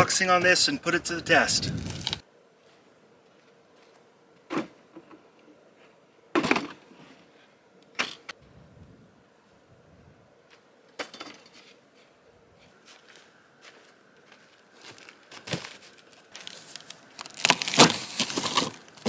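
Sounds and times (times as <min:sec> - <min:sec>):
folding table clunks and rattles: 0:06.4 - 0:06.8.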